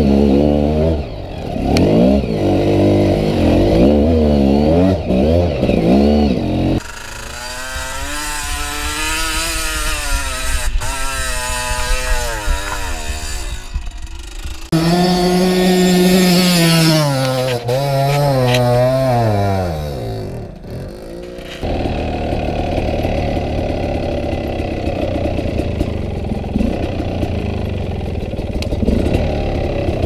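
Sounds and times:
dirt bike engines revving: 0.0s - 30.0s.

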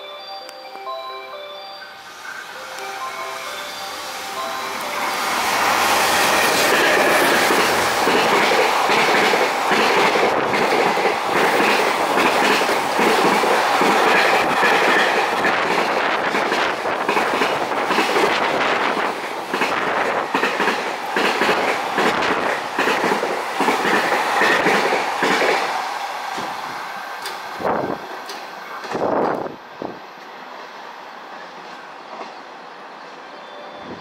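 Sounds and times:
rushing train noise: 0.0s - 34.0s
train wheels clattering over rail joints: 6.2s - 27.5s.

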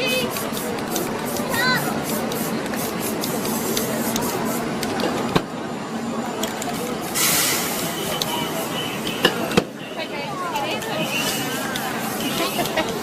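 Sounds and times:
aerosol spray can hissing: 0.0s - 4.8s, 6.7s - 9.0s, 11.1s - 13.0s
paint clicks and scraping: 0.3s - 5.3s.

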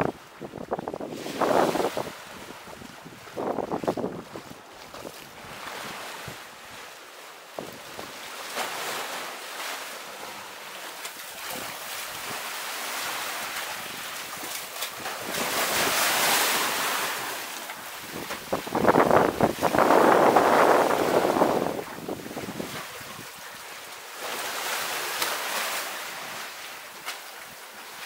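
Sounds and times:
wind on microphone: 0.0s - 6.8s, 18.0s - 23.6s
sea waves washing onto beach: 0.0s - 28.0s.

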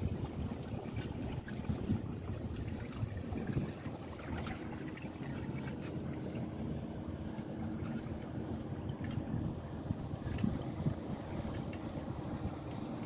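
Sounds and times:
water rushing along boat hull: 0.0s - 13.0s.

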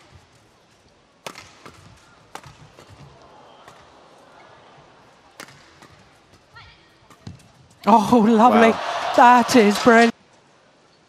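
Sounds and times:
rackets hitting shuttlecock: 1.2s - 4.0s, 5.3s - 6.3s.

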